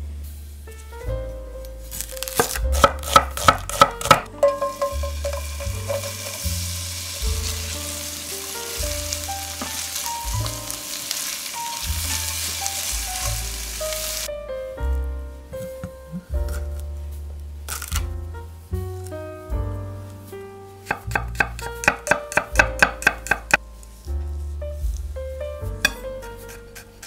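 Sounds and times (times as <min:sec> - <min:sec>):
onion sizzling in oil: 0:01.9 - 0:14.3
knife cutting onion on wooden board: 0:02.2 - 0:04.3, 0:16.4 - 0:16.8, 0:20.8 - 0:23.6, 0:25.9 - 0:27.0
spatula stirring in pan: 0:04.4 - 0:08.1.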